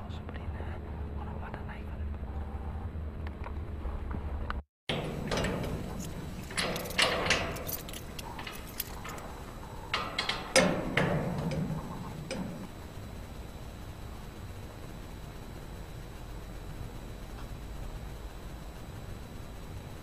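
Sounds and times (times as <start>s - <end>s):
clicks and rattles of handling: 4.9s - 12.7s.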